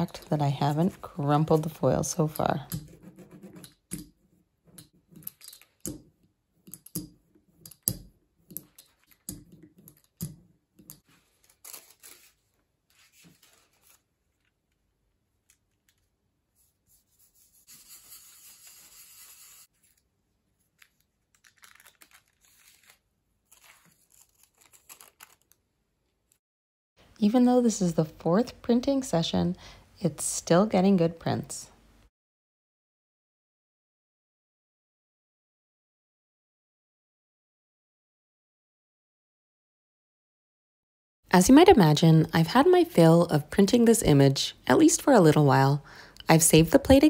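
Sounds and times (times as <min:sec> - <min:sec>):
paper handling: 0:11.0 - 0:14.8, 0:19.8 - 0:25.6
paper crinkling: 0:11.0 - 0:16.1, 0:19.7 - 0:25.6.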